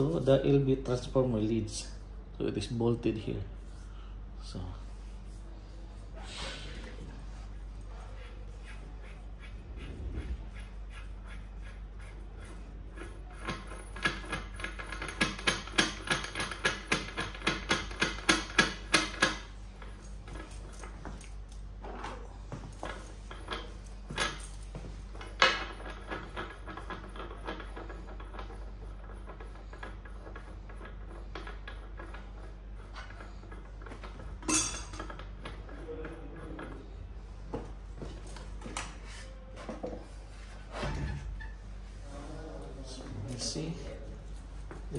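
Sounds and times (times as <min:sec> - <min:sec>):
metal clinks and knocks: 0:34.4 - 0:35.3.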